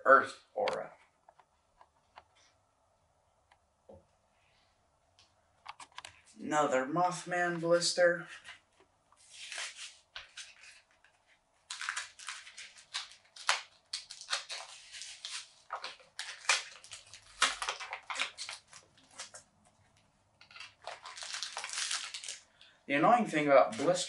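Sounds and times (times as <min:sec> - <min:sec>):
blister pack tearing: 0:11.6 - 0:19.4, 0:20.4 - 0:22.6.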